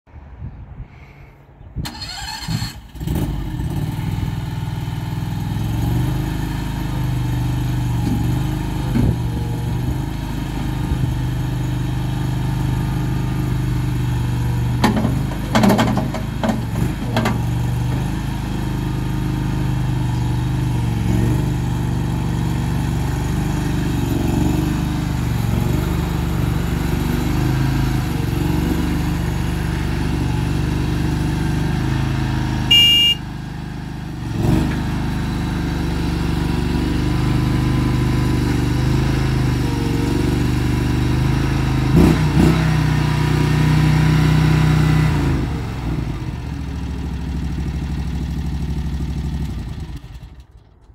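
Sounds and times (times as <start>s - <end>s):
loader engine running: 1.8s - 50.9s
short high beep: 32.7s - 33.2s.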